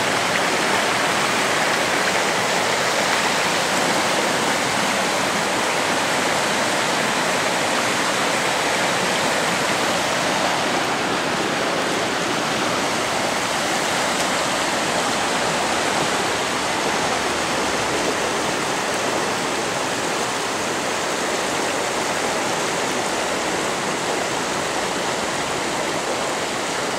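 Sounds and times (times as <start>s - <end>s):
flooded river rushing over rapids: 0.0s - 26.9s.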